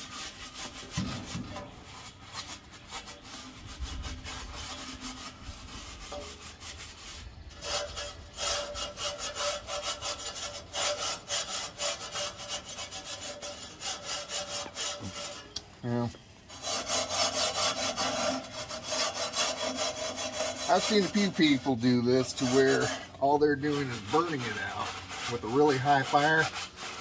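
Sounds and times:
scrubbing scraping on steel: 0.0s - 27.0s.

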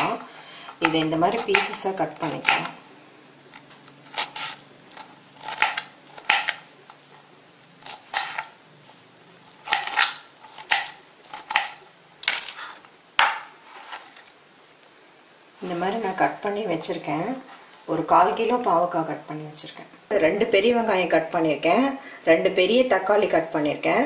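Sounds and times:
knife chopping on cutting board: 0.8s - 2.7s, 5.4s - 6.6s.

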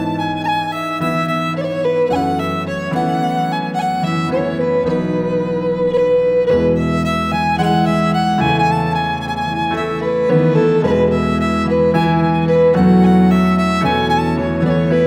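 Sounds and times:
piano chords: 0.0s - 15.0s
slow fiddle melody: 0.0s - 15.0s.

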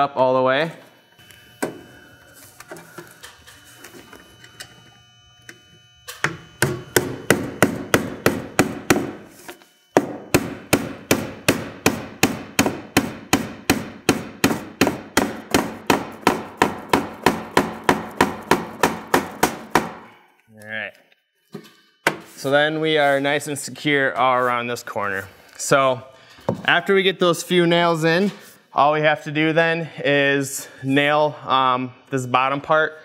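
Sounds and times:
hammer driving nails into metal: 10.0s - 20.1s.

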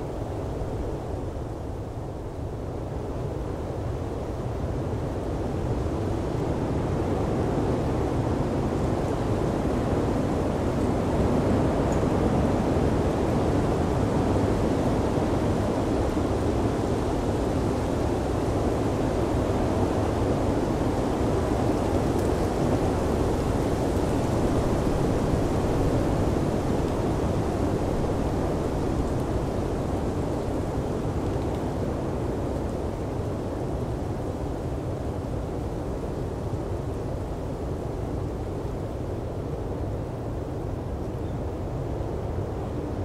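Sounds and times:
blizzard wind rushing: 0.0s - 43.0s.

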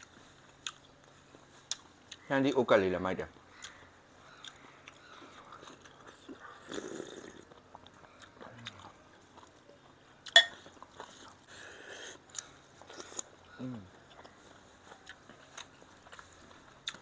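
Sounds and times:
chewing: 0.0s - 2.3s, 3.4s - 17.0s
spoon clinking on ceramic bowl: 10.4s - 10.6s.

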